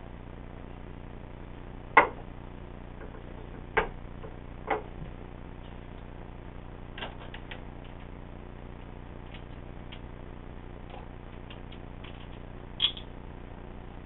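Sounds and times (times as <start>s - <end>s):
steady low hum: 0.0s - 14.0s
small light clicks: 11.4s - 13.1s.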